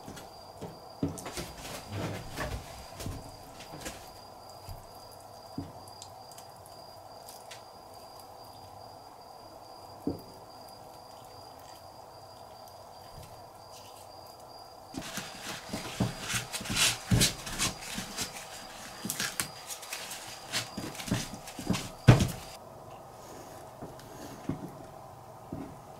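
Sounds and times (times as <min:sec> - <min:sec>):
faint room hum: 0:00.0 - 0:25.9
towel scrubbing on cutting board: 0:15.0 - 0:22.6.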